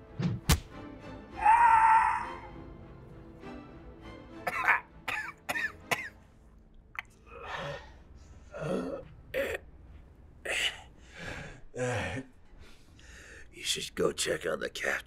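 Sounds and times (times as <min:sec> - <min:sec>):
man breathing heavily: 0:10.4 - 0:13.5.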